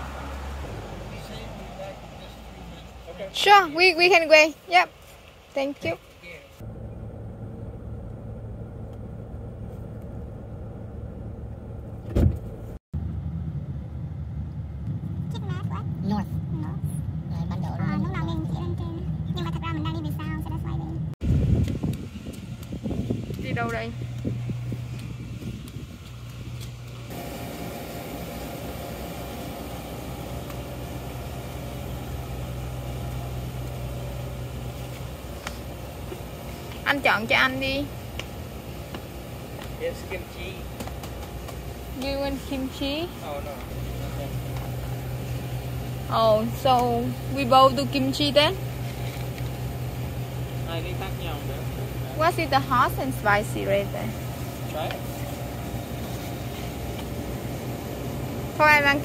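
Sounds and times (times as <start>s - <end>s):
car engine and road noise: 0.0s - 59.0s
low mechanical hum: 16.6s - 59.0s.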